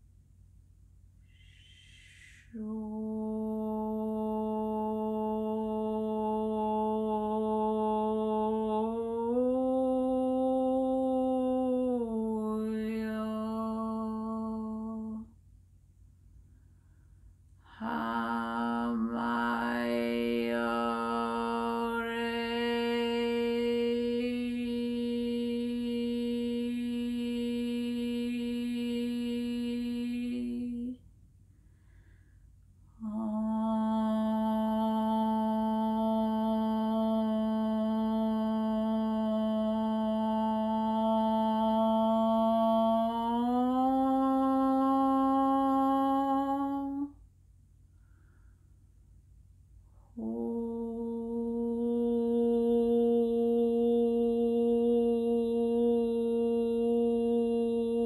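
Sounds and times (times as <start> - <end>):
woman humming: 1.3 - 15.3, 17.7 - 31.0, 33.0 - 47.2, 50.2 - 58.0
woman chanting held note: 1.4 - 15.3.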